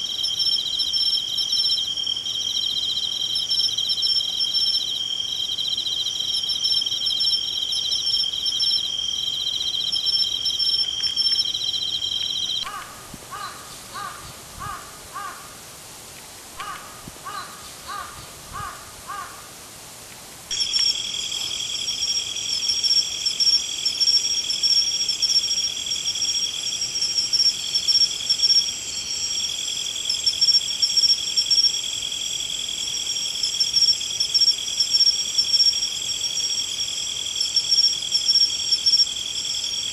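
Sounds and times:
insect chorus trilling: 0:00.0 - 0:15.6, 0:16.6 - 0:19.5, 0:20.5 - 0:39.9
crows cawing: 0:12.6 - 0:15.6, 0:16.6 - 0:19.5.

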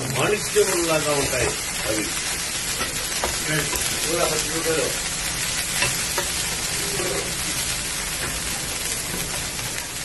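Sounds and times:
onions sizzling in oil: 0:00.0 - 0:10.0.

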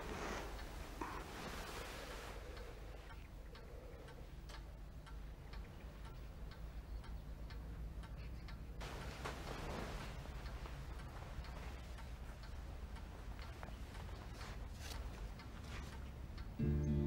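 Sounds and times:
low hum: 0:00.0 - 0:17.0
clock ticking: 0:02.5 - 0:08.9, 0:10.2 - 0:17.0.

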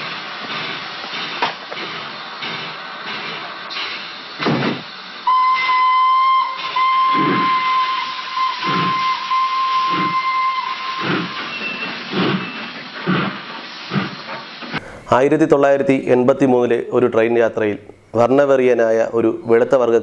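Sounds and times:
locomotive exhaust chuffing: 0:00.0 - 0:15.6
steam hissing: 0:00.0 - 0:16.8
steam locomotive whistle: 0:05.2 - 0:12.8.

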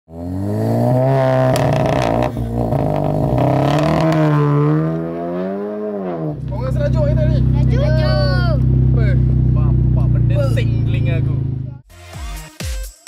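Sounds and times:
car engine revving: 0:00.1 - 0:11.8
exhaust pops: 0:01.0 - 0:04.4.

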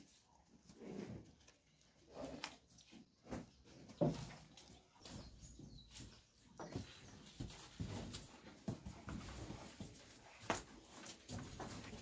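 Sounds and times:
rustling of cows feeding: 0:00.0 - 0:12.0
cows knocking in a shed: 0:03.3 - 0:12.0.

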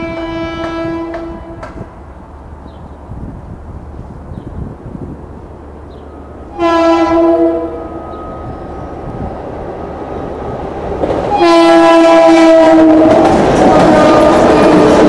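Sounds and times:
train horn blasts: 0:00.0 - 0:02.0, 0:06.4 - 0:08.6, 0:11.3 - 0:15.0
train rumble: 0:00.0 - 0:15.0.

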